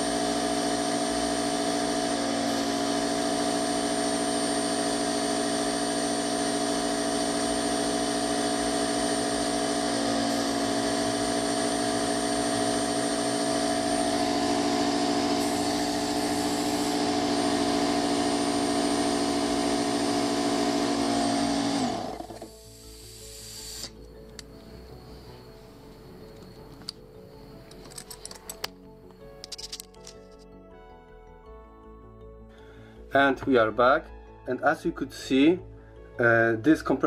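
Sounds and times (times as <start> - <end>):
air compressor running: 0.0 - 25.4
compressor winding down: 0.0 - 27.0.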